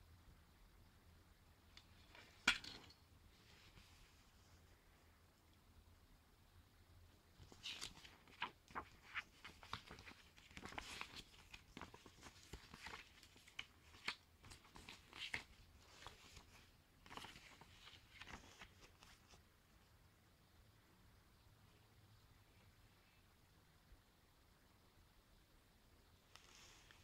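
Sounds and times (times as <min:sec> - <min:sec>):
paper pages crackling: 0:07.4 - 0:19.4.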